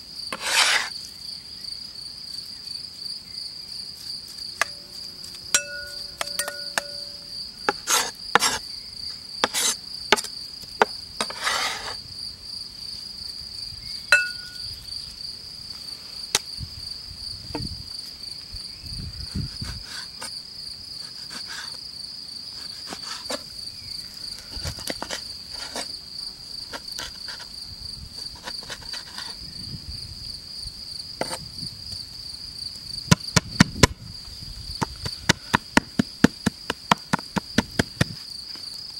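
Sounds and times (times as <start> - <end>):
insects chirring: 0.0 - 38.9
cleaver tapping in a bowl: 5.6 - 7.2, 14.1 - 14.6
cleaver chopping on wooden board: 5.6 - 8.6, 34.8 - 38.2.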